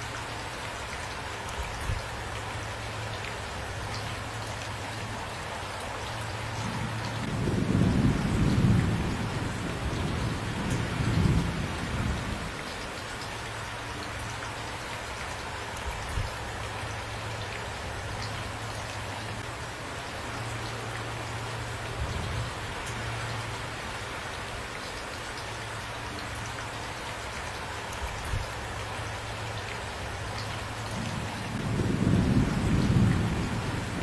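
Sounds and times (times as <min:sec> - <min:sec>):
steady rain: 0:00.0 - 0:34.0
low thunder rumble: 0:06.6 - 0:12.6, 0:31.0 - 0:34.0.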